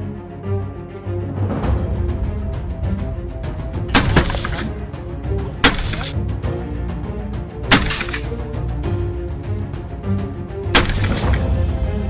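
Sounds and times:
background music: 0.0 - 12.0
gunshot echo: 3.9 - 4.7, 10.8 - 11.5
rifle firing single shots: 7.7 - 8.3, 10.8 - 11.5.

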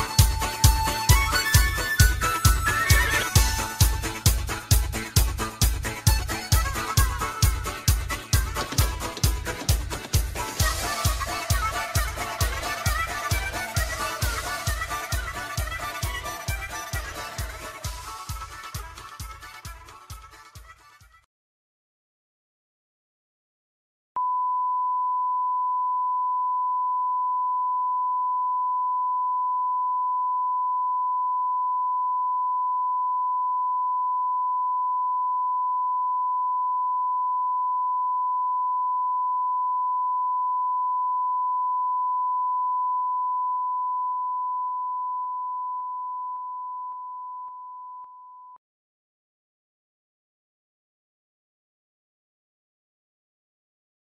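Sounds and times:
steady test tone beep: 24.2 - 48.6.

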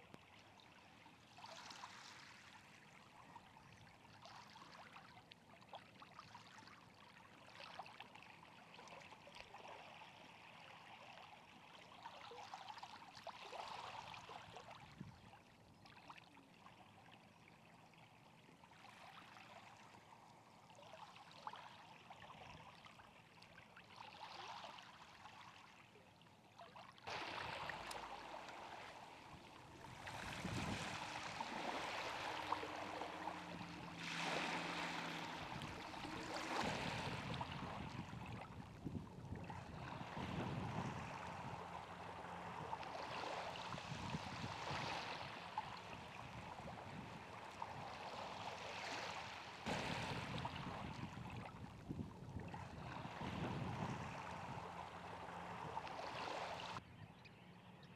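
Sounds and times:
wind: 0.0 - 57.9
faint low drone: 27.1 - 47.9.

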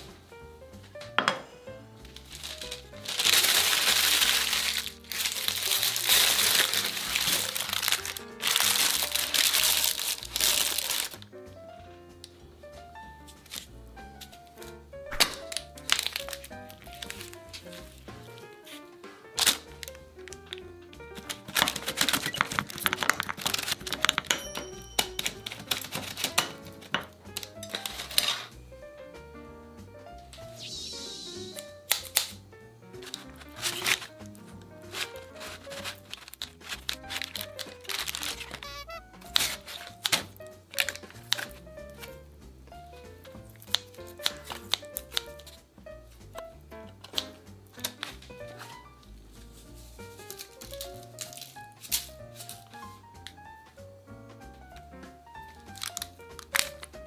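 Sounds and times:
light background music: 0.0 - 57.0
paper being crumpled: 2.1 - 11.3, 13.4 - 14.5, 15.2 - 28.5, 31.5 - 32.4, 33.0 - 42.2, 43.0 - 45.6, 47.0 - 53.4, 54.7 - 57.0.

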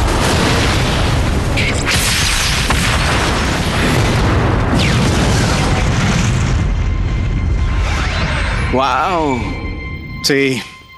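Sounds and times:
cartoon explosion: 0.0 - 8.7.

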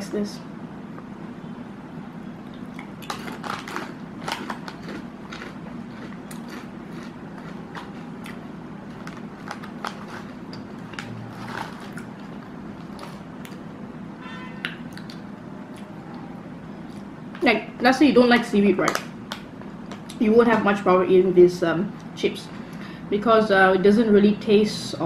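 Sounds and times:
potato chips crunching: 2.7 - 13.7
foil chip bag rustling: 3.1 - 8.2, 8.8 - 13.3.

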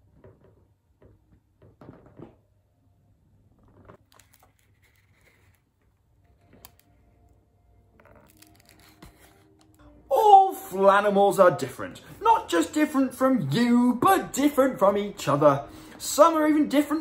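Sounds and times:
rustling of card pages: 3.8 - 9.8.

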